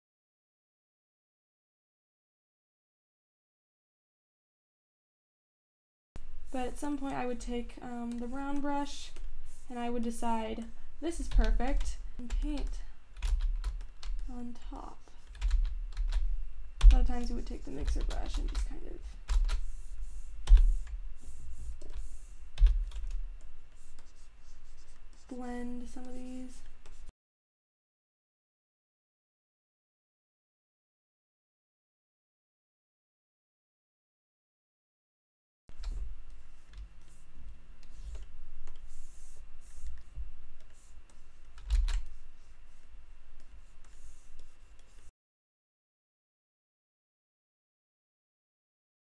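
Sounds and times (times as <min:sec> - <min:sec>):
keyboard keys clicking: 0:15.3 - 0:16.2, 0:41.6 - 0:42.1
computer keyboard and mouse clicks: 0:39.8 - 0:42.2.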